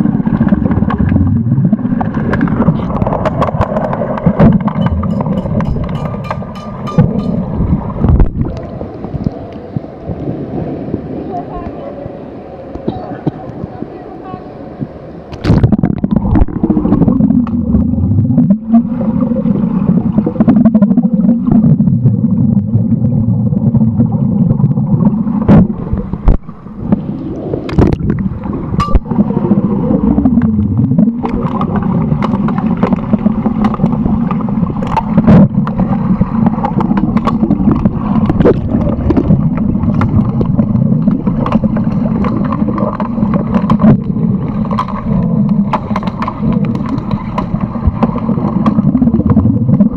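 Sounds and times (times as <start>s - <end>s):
underwater low rumble: 0.0s - 49.9s
sharp clicks and knocks: 2.0s - 8.6s, 36.4s - 49.4s.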